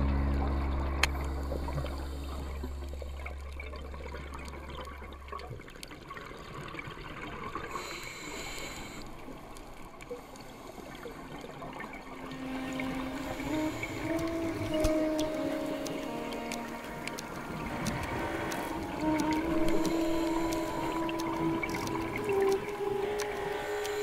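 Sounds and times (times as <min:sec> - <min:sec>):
underwater bubbling of exhaled air: 0:00.0 - 0:24.0
hiss of inhaled air: 0:07.7 - 0:09.1.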